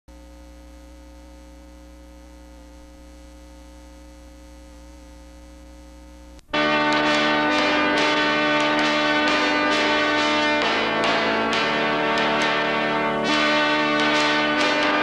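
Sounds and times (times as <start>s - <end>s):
electrical mains hum: 0.1s - 15.0s
loud music: 6.5s - 15.0s.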